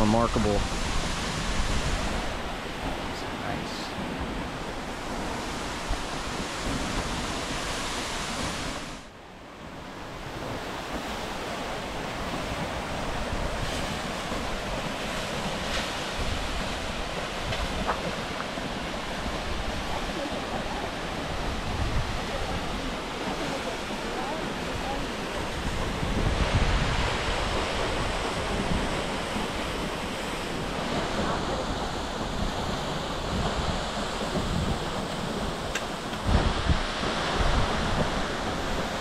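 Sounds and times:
wind on microphone: 0:00.0 - 0:39.0
waterfall rushing: 0:11.2 - 0:39.0.

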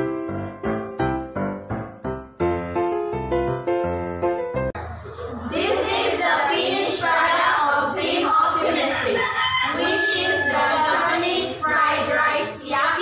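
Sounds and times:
women singing in chorus: 0:05.5 - 0:13.0.

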